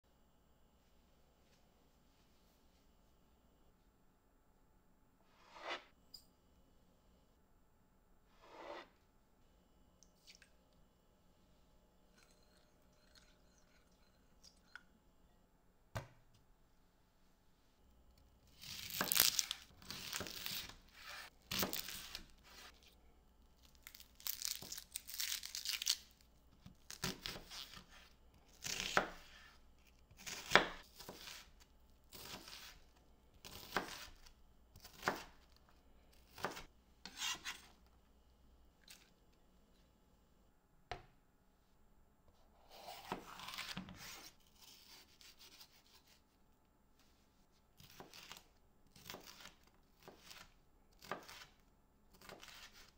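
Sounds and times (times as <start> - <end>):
knife cutting on cutting board: 5.4 - 5.9, 8.4 - 8.9, 30.2 - 32.8, 33.4 - 35.4, 36.3 - 37.7
rustling tearing sounds: 23.8 - 26.1.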